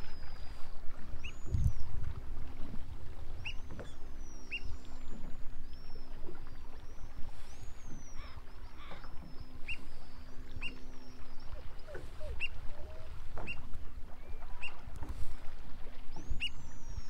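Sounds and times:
small waves lapping: 0.0s - 17.0s
oystercatchers whistling calls: 3.4s - 4.8s, 6.9s - 11.5s, 12.2s - 12.6s, 16.1s - 17.0s.

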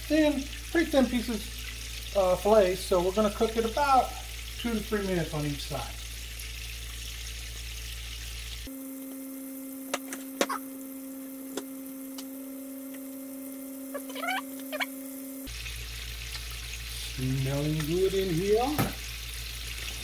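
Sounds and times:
fish sizzling in oil: 0.0s - 20.0s
low hum with higher tone: 0.1s - 18.5s
short rising squeaks: 13.9s - 15.0s.

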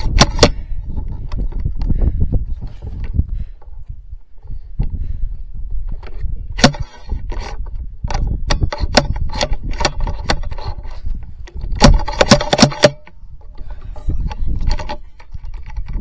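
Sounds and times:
rifle handling clicks and scrapes: 0.0s - 1.9s, 5.8s - 16.0s.

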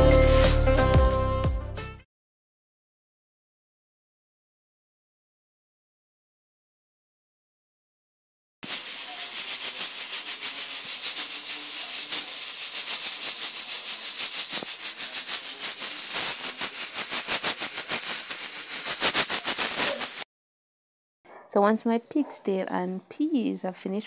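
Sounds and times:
pressure cooker valve rattling: 8.6s - 20.2s
pressure cooker steam hissing: 8.6s - 20.3s.

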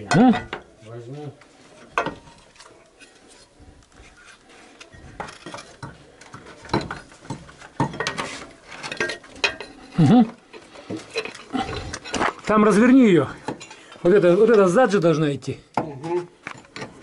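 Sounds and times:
metal tools clinking and knocking: 0.0s - 0.7s, 4.8s - 14.7s, 15.8s - 17.0s.

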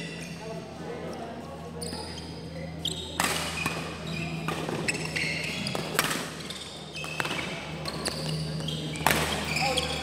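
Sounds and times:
shoes squeaking on court: 1.7s - 10.0s
racket hitting shuttlecock: 3.2s - 4.8s, 5.7s - 6.4s, 9.0s - 9.5s.

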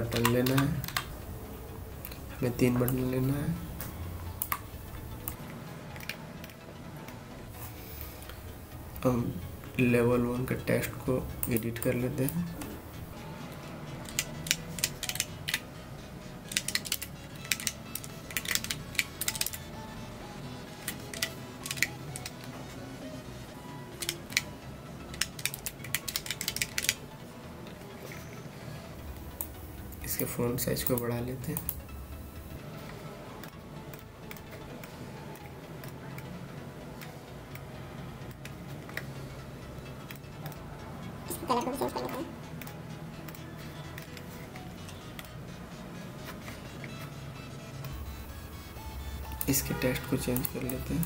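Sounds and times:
computer keyboard typing: 0.0s - 1.2s, 2.0s - 7.2s, 14.0s - 15.7s, 16.4s - 19.8s, 20.7s - 22.6s, 23.9s - 27.1s, 29.0s - 31.9s, 32.8s - 36.3s, 40.0s - 40.6s, 46.2s - 51.0s
low background hum: 0.0s - 51.0s
computer mouse clicks: 14.0s - 15.6s, 16.5s - 19.6s, 20.8s - 22.5s, 24.0s - 24.5s, 25.1s - 27.0s, 33.4s - 36.3s.

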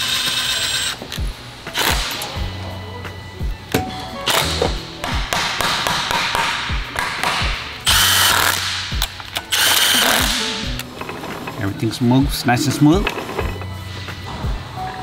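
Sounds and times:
cordless drill whirring: 0.0s - 1.0s, 7.9s - 8.6s, 9.5s - 10.3s
background music with thudding beat: 0.9s - 15.0s.

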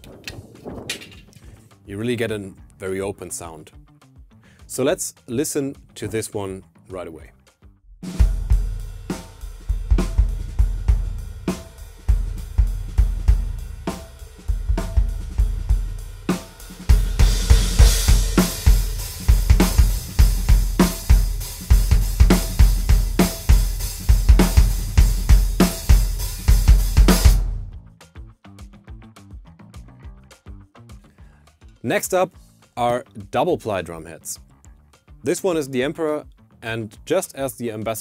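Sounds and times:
drum kit groove: 0.0s - 38.0s
open bass drum kick: 8.0s - 29.1s
cymbals washing: 8.6s - 27.3s.

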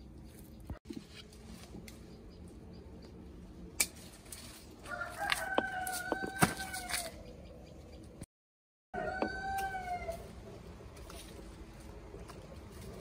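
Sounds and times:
rooster crowing: 4.8s - 7.2s, 8.9s - 10.3s.

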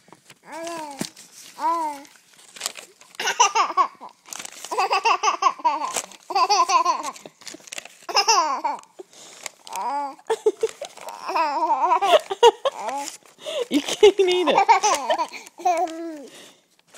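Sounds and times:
baby laughing: 3.2s - 7.4s, 8.1s - 9.0s, 9.8s - 13.1s, 13.7s - 16.1s.

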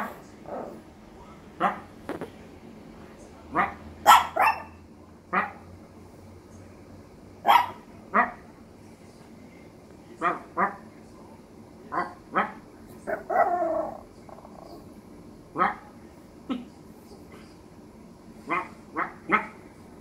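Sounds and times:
puppy yapping: 4.0s - 4.8s, 7.4s - 7.8s
puppy howling: 13.1s - 14.8s.

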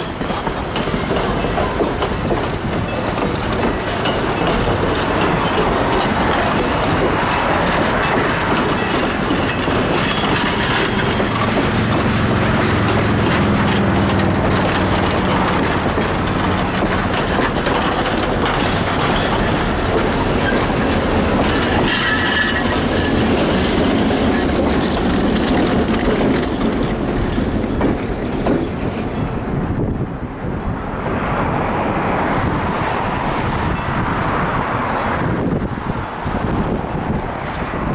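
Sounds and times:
train wheels rattling on rails: 0.0s - 37.9s
high wheel squeal: 18.5s - 25.6s.

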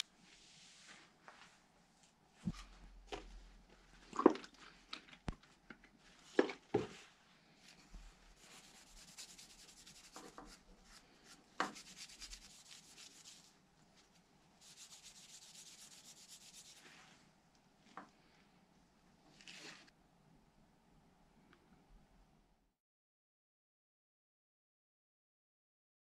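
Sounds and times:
cloth scratching on wood: 8.4s - 10.6s, 11.7s - 13.5s, 14.6s - 17.1s.

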